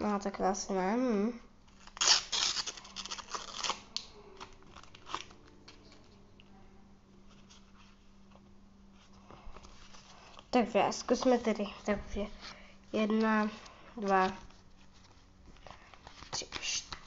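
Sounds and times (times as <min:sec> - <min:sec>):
wrapper tearing with crinkly rips: 0:01.7 - 0:06.1
wrapper rustling: 0:01.7 - 0:06.2.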